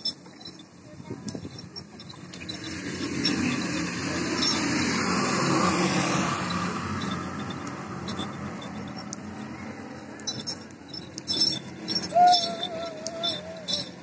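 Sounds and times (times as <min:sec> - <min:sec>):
motor vehicle passing by: 0:02.0 - 0:14.0.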